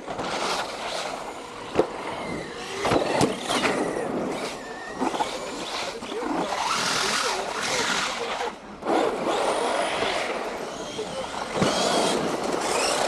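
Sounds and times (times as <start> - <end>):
model car motors whining: 0.0 - 13.0.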